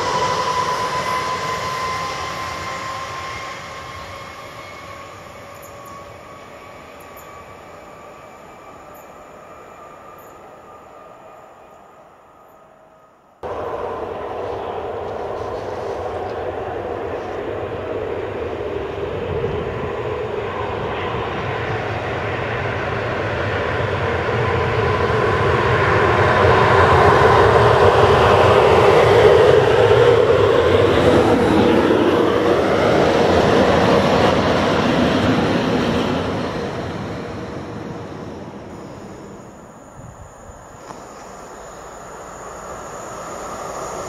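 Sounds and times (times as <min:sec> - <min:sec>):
electric motor hum: 0:38.7 - 0:44.0.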